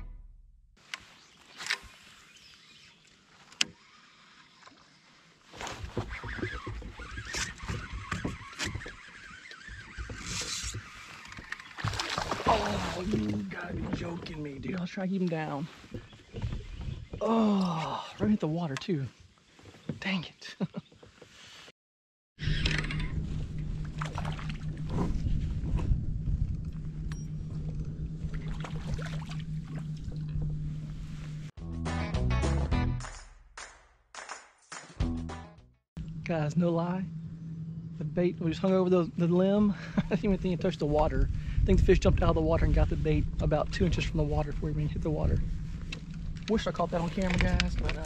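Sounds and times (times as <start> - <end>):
water lapping on a hull: 3.8 - 18.6, 23.3 - 31.5, 38.1 - 48.0
kayak low rumbling: 5.5 - 18.7, 22.4 - 31.5, 36.0 - 48.0
steady low hum: 22.4 - 31.5, 36.0 - 48.0
wind on microphone: 23.0 - 31.3, 40.3 - 48.0.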